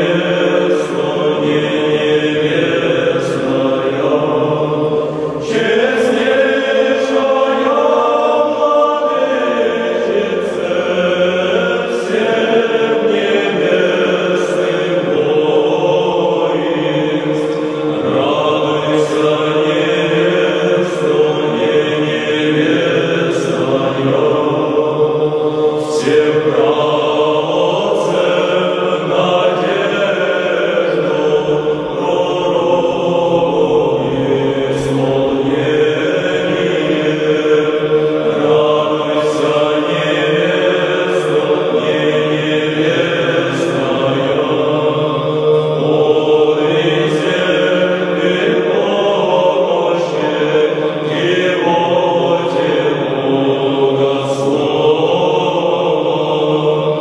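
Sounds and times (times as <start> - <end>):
slow vocal chant: 0.0 - 57.0.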